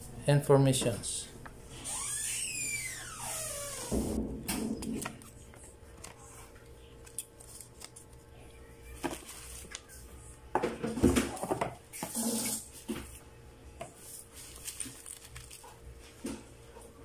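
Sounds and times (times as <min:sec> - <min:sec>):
paper rustling: 0:04.9 - 0:08.2, 0:08.9 - 0:10.0, 0:14.0 - 0:16.1.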